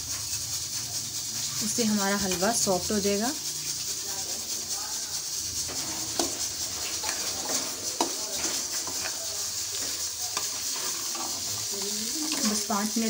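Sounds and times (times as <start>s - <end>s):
frying sizzle: 0.0s - 13.0s
spatula scraping wok: 0.0s - 13.0s
spatula knocking pan: 5.6s - 12.9s.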